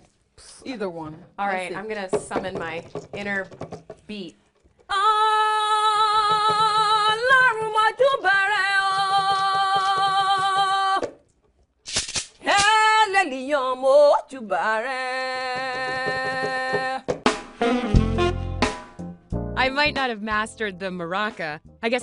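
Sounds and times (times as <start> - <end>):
woman singing with vibrato: 4.9 - 11.1, 12.4 - 17.1.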